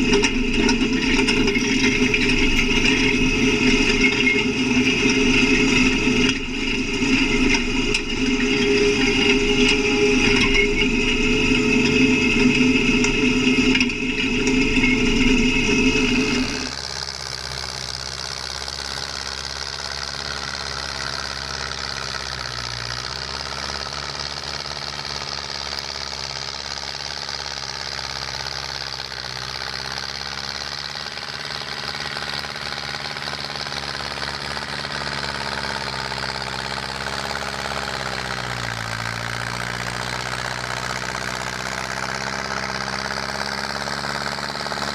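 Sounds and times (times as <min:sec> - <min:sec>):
cultivator tines dragging through soil: 0:00.0 - 0:44.9
diesel tractor engine running: 0:00.0 - 0:44.9.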